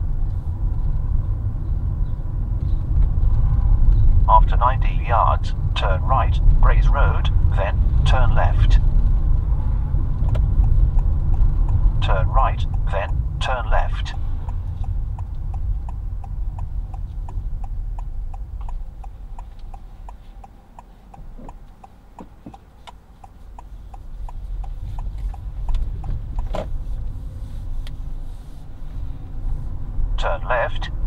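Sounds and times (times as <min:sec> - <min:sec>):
engine and road rumble: 0:00.0 - 0:31.0
turn indicator ticking: 0:04.8 - 0:28.1.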